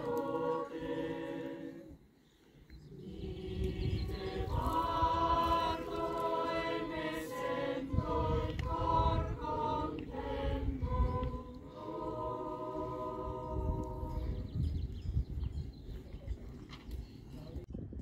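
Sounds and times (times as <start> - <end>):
choir singing: 0.0 - 2.1, 2.8 - 14.6.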